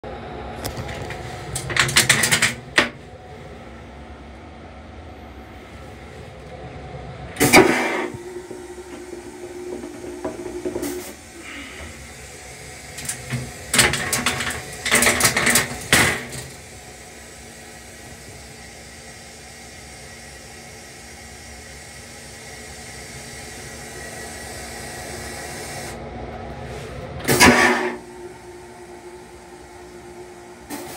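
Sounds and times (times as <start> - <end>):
railcar running noise: 0.0 - 30.9
steady hum: 0.0 - 30.9
train toilet flushing: 0.6 - 30.9.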